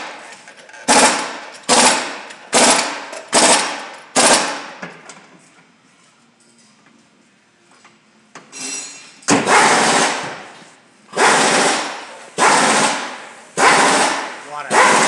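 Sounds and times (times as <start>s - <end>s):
air tool bursts: 11.2s - 15.0s.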